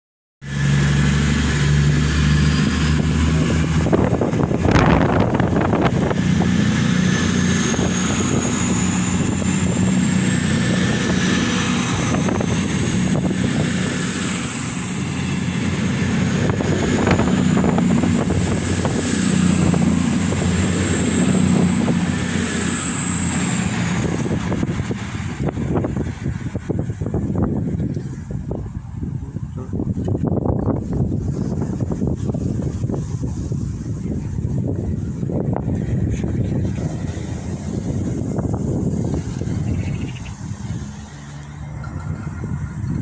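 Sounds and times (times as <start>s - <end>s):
diesel engine low drone: 0.4s - 43.0s
train high whine rising: 0.4s - 43.0s.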